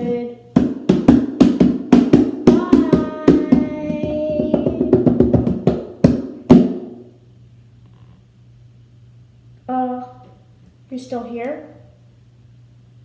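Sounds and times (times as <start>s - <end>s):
fast drum hits: 0.5s - 7.1s.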